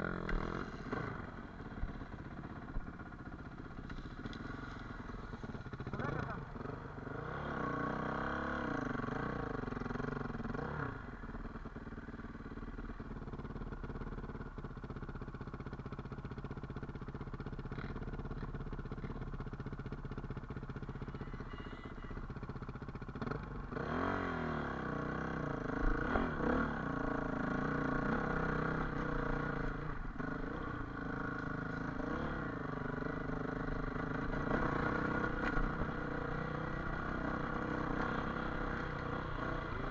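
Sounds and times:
dirt bike engine revving: 4.2 - 11.1, 23.2 - 39.9.

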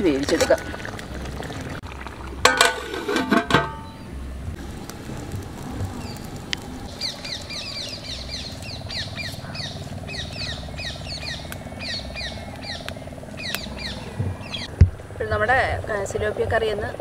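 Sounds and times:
bird chirping: 6.9 - 14.8.

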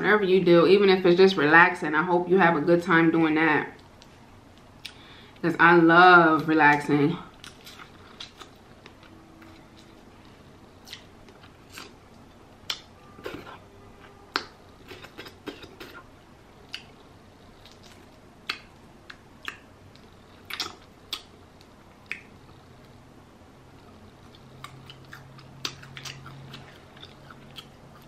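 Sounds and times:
soft chewing: 7.3 - 23.0, 23.7 - 28.0.

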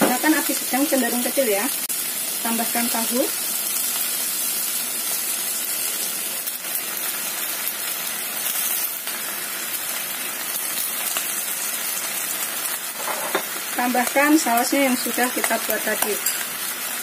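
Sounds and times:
meat sizzling in oil: 0.0 - 17.0.

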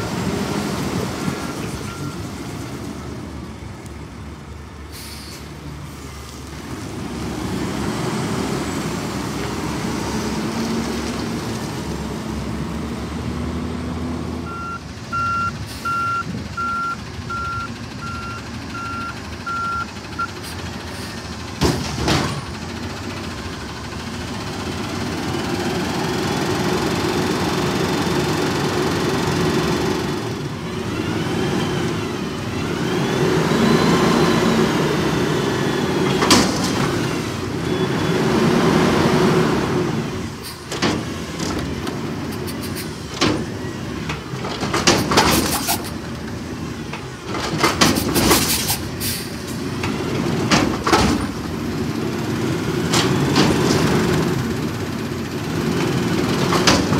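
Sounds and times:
truck engine revving: 0.0 - 4.8, 5.4 - 56.9
truck backup alarm beeps: 1.4 - 2.4, 14.4 - 21.0, 32.6 - 36.3, 37.0 - 38.7
hydraulic arms lifting dumpster: 40.2 - 56.9.

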